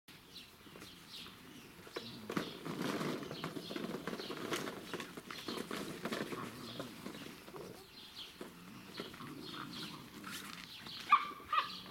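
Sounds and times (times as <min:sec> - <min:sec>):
puppy paws scrabbling: 0:01.9 - 0:07.8.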